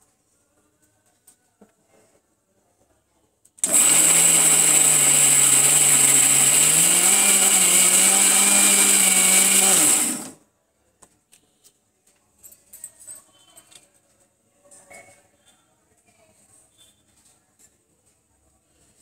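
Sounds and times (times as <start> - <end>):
mixer grinder motor grinding: 3.6 - 10.4.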